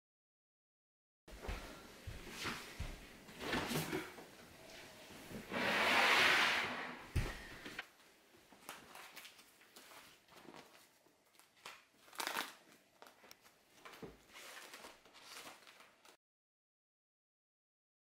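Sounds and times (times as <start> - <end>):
magazines rustling in plastic box: 8.6 - 16.2.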